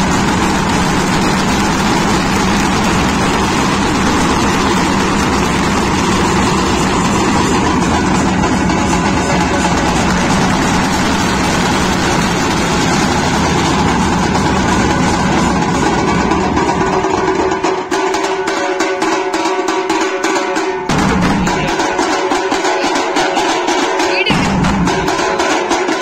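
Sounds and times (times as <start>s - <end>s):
low rumble: 0.0s - 17.3s
quick even drum beat: 0.0s - 26.0s.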